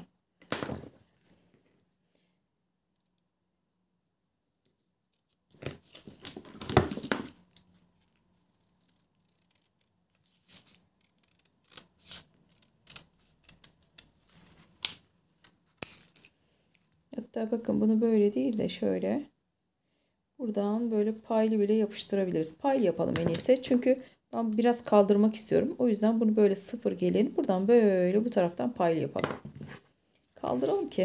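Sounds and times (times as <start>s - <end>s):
scissors cutting paper: 8.6s - 16.3s.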